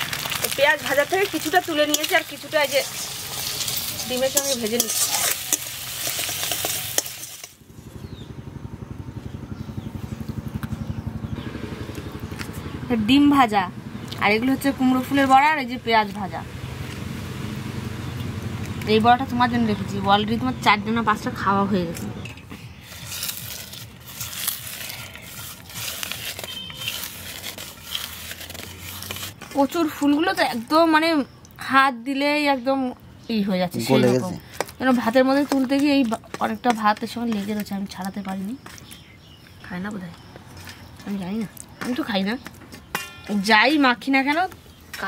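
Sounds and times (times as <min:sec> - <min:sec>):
food sizzling in a wok: 0:00.0 - 0:07.6
dried chillies crackling: 0:00.0 - 0:07.7, 0:22.6 - 0:31.6, 0:33.7 - 0:45.0
metal spatula scraping and clicking: 0:01.2 - 0:07.6, 0:22.2 - 0:29.6, 0:34.6 - 0:38.8
engine chugging: 0:05.5 - 0:29.1.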